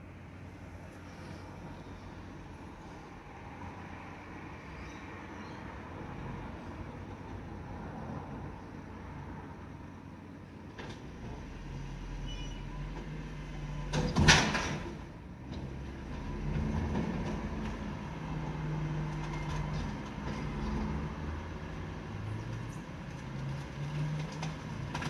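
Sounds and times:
garbage truck engine: 10.5 - 25.0
loud clatter of bin: 14.0 - 15.0.

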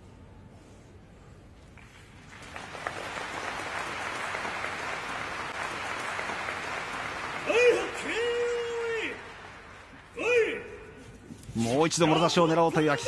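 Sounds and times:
low hall noise: 0.0 - 13.0
audience clapping: 1.8 - 10.2.

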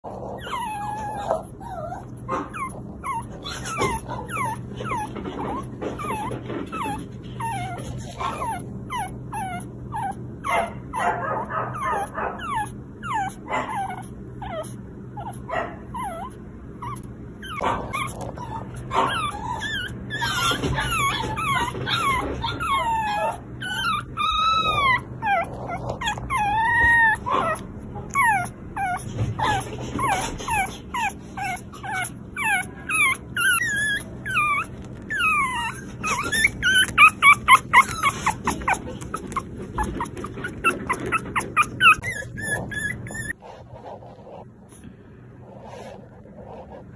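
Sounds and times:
puppy whimpering squeaks: 0.0 - 10.9, 11.7 - 43.4
puppy whining: 0.0 - 46.9.

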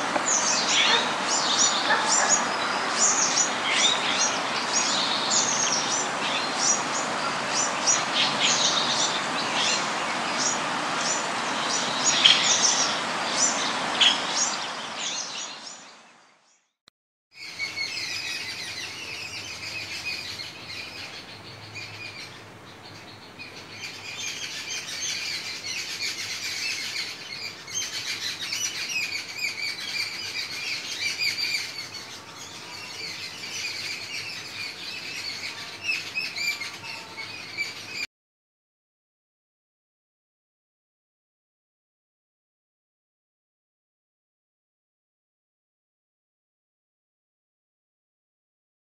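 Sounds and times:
birds chattering: 0.0 - 15.6, 17.4 - 38.1.

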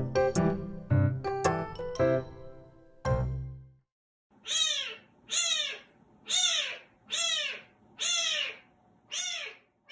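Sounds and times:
kitten meowing: 4.4 - 9.9.

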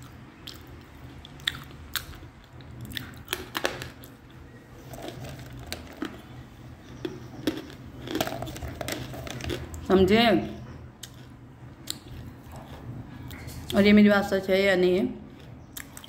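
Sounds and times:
dry crunching bites: 4.8 - 9.9.

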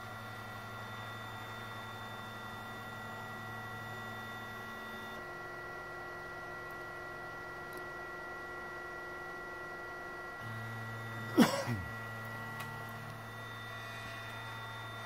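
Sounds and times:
lower hum: 10.4 - 15.0.

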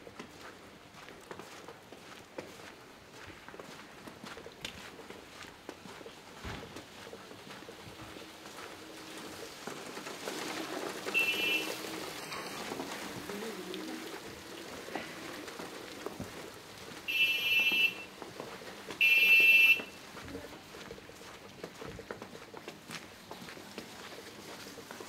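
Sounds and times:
distant voices: 7.1 - 21.2
hiss of falling wet snow: 8.9 - 18.0.

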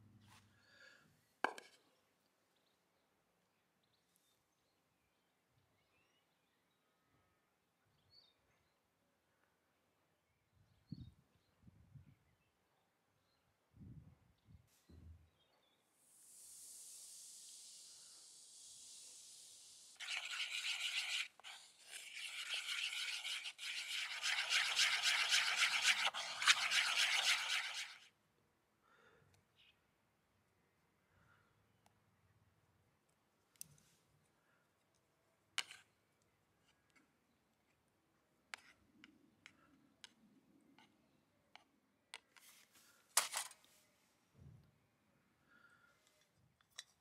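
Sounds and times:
stick stirring batter in bowl: 18.5 - 28.1.

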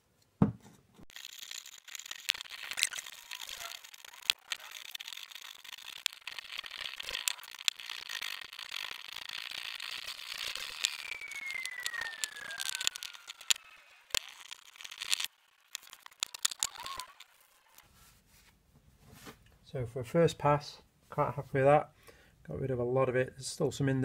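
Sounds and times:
squeal falling in pitch: 10.5 - 14.5.

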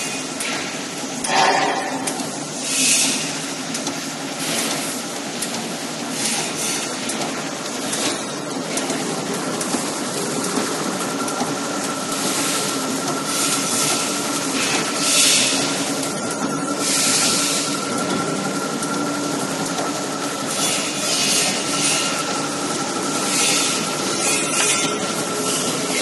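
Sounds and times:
machine mechanical clatter: 0.3 - 26.0
machine hum: 8.4 - 26.0.

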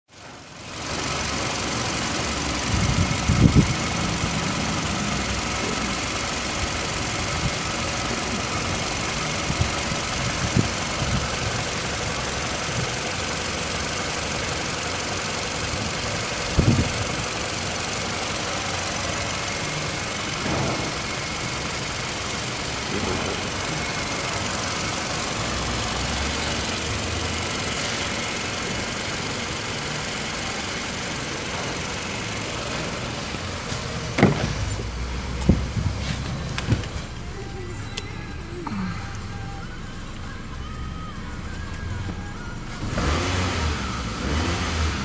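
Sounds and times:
car engine idling: 0.1 - 45.0
low thumps: 34.0 - 37.1.

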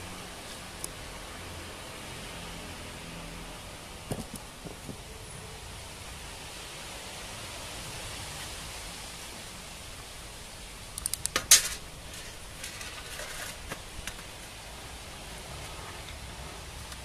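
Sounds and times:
steady hiss: 0.0 - 17.0
sharp metallic clicks: 10.9 - 11.8.

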